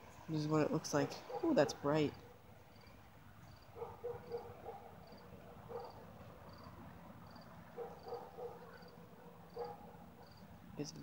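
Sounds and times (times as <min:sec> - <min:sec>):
crickets chirping: 0:02.1 - 0:10.5.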